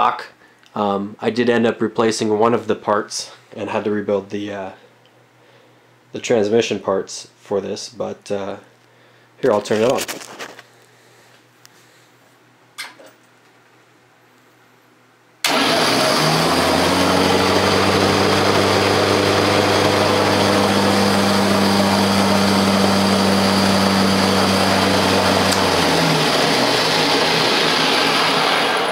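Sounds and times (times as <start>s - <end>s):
electric motor whirring: 15.5s - 28.7s
low motor hum: 15.5s - 28.9s.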